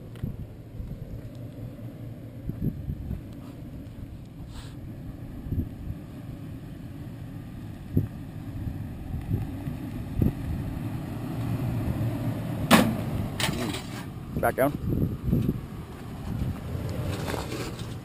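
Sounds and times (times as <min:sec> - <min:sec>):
vehicle engine running low: 0:00.0 - 0:18.0.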